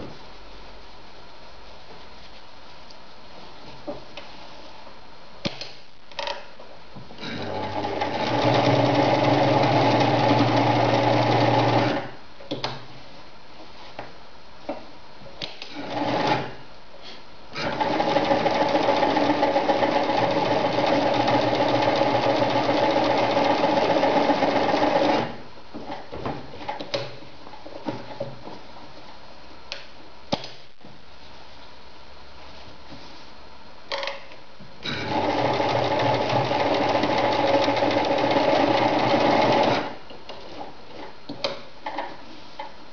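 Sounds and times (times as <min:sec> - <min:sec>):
sewing machine stitching: 0:07.2 - 0:12.1, 0:15.7 - 0:16.6, 0:17.6 - 0:25.4, 0:34.9 - 0:40.0.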